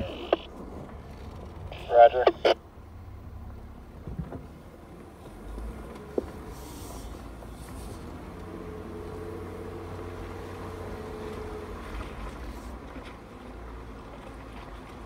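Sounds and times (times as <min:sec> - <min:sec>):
faint steady whine: 0:00.0 - 0:00.5, 0:01.7 - 0:02.6
vehicle engine rumbling: 0:00.0 - 0:15.0.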